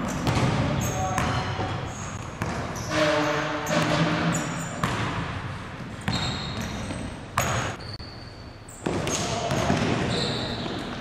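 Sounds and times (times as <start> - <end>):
basketball bouncing on hardwood floor: 0.0 - 1.4, 2.4 - 2.6.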